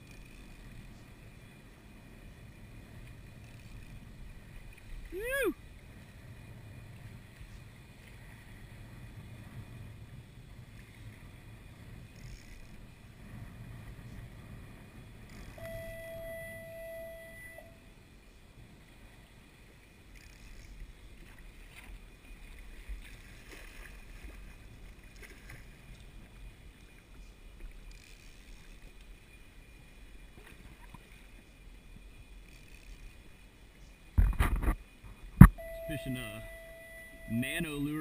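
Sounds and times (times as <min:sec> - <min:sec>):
wind rumble on microphone: 0:00.0 - 0:37.5
waves lapping against kayak hull: 0:00.0 - 0:38.0
steady tone: 0:14.3 - 0:18.0, 0:35.4 - 0:38.0
small splashes and knocks: 0:21.2 - 0:26.1.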